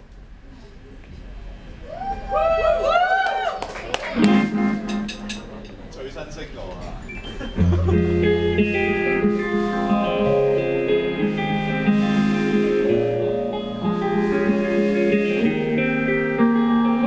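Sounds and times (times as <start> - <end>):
bass guitar lines: 4.1 - 5.9, 6.9 - 17.0
electric guitar chords: 4.2 - 5.4, 7.6 - 17.0.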